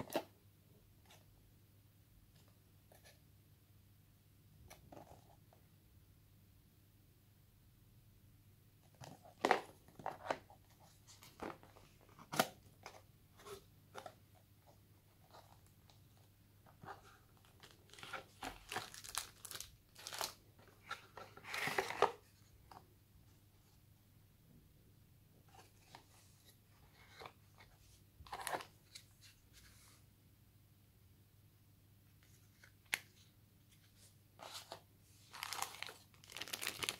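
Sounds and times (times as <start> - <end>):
plastic wrap crinkling: 17.5 - 20.4, 35.3 - 36.9.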